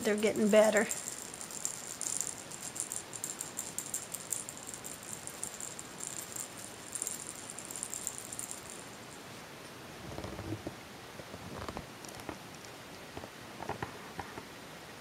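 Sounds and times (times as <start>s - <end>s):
cat toy rattle clicking: 0.4s - 9.0s.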